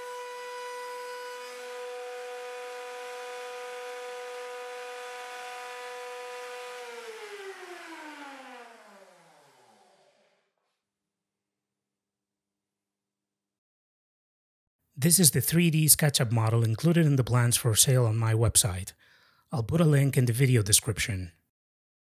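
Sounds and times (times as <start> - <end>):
router whining and winding down: 0.0 - 10.6.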